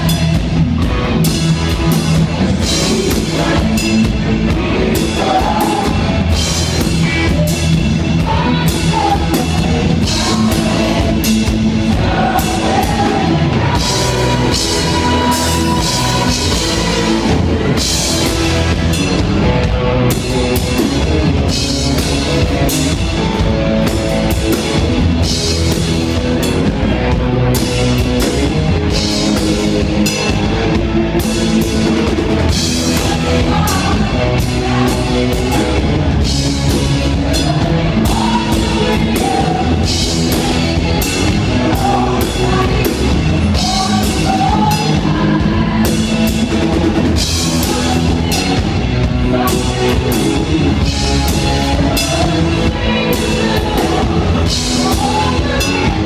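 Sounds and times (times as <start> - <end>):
live rock band playing: 0.0 - 56.0
woman singing lead: 2.6 - 18.7, 32.5 - 56.0.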